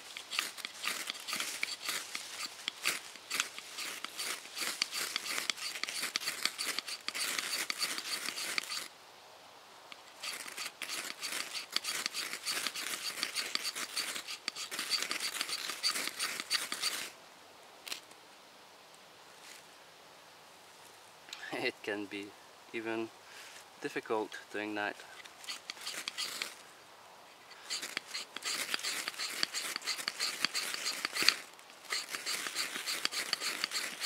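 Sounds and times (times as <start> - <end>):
knife scraping fire steel: 0.0 - 8.9, 10.2 - 17.1, 25.2 - 26.6, 27.4 - 34.0.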